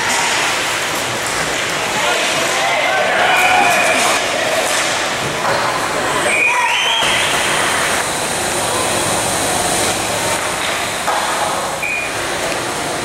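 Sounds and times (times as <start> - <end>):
skates and sticks on ice: 0.0 - 6.0.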